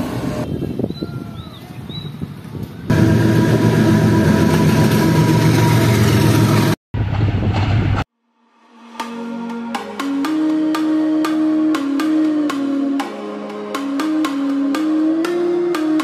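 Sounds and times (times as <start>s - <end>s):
diesel locomotive engine: 0.0s - 0.5s, 2.7s - 8.0s
bird chirps: 0.5s - 2.2s.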